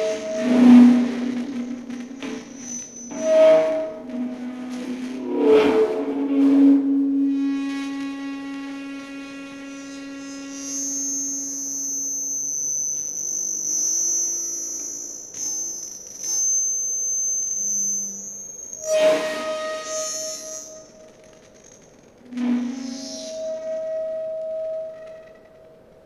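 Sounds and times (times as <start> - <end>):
short scraping noises: 0.0 - 7.7
quiet low tones: 0.0 - 8.7
low hum: 0.0 - 11.5
high thin whistling tone: 0.0 - 25.6
sharp crackling burst: 0.1 - 9.5.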